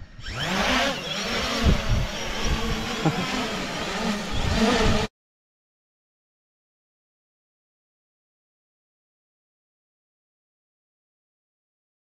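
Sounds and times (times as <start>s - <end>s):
drone propellers whirring: 0.0s - 5.1s
wind buffeting microphone: 1.2s - 3.2s, 4.2s - 5.1s.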